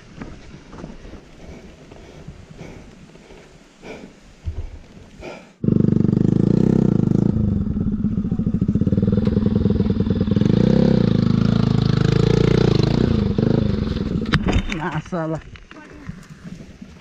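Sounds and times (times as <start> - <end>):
motorcycle engine revving: 5.6 - 14.4.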